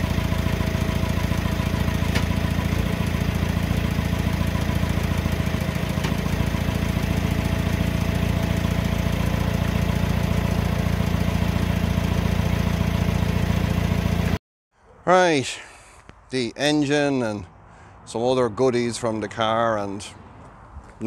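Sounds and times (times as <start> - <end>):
diesel engine idling: 0.0 - 14.4.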